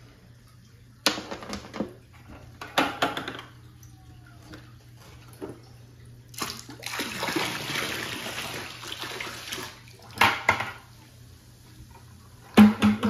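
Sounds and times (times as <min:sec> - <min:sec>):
liquid pouring into water: 0:06.0 - 0:10.2.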